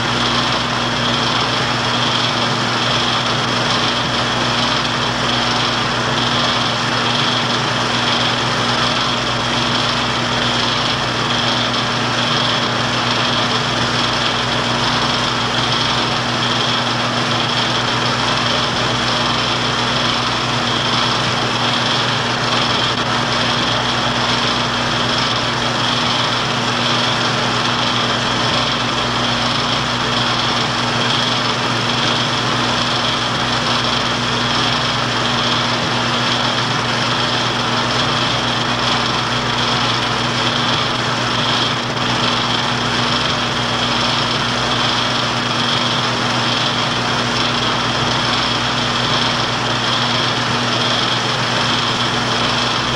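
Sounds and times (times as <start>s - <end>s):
film projector whirring: 0.0s - 52.9s.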